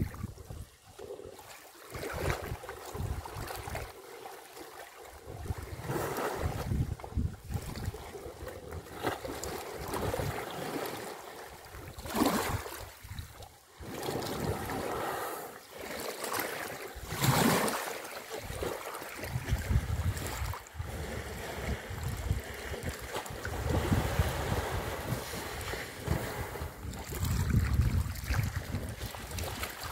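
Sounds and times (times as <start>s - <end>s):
wind buffeting microphone: 0.0s - 0.7s, 2.1s - 3.8s, 5.3s - 8.2s, 18.4s - 29.9s
elephants splashing in water: 13.8s - 29.9s.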